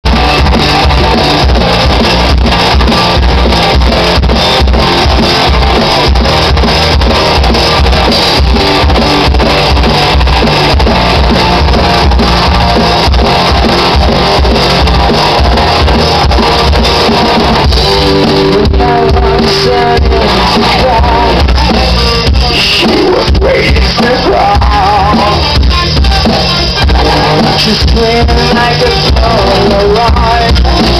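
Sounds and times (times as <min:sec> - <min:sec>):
bass: 0:00.0 - 0:30.9
drum kit: 0:00.0 - 0:30.9
electric guitar: 0:00.0 - 0:30.9.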